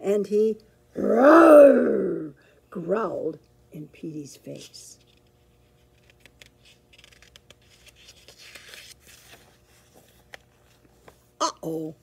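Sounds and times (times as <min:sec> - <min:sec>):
paper page rustling: 0:05.0 - 0:11.2.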